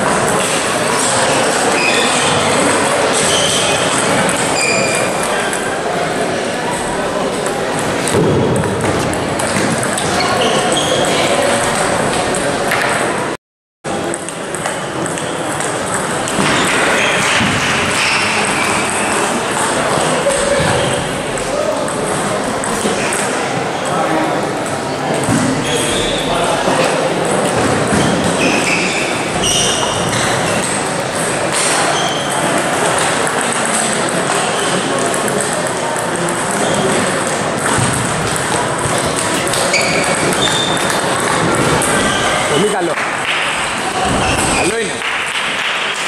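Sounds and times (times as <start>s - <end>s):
echoing hall noise: 0.0s - 46.0s
short high squeaks: 1.7s - 2.3s, 3.1s - 3.9s, 4.5s - 5.2s, 10.1s - 11.2s, 28.4s - 30.8s, 31.6s - 32.5s, 39.5s - 41.1s
table tennis balls clicking: 7.4s - 13.1s, 14.0s - 20.2s, 21.3s - 23.4s, 29.7s - 43.0s.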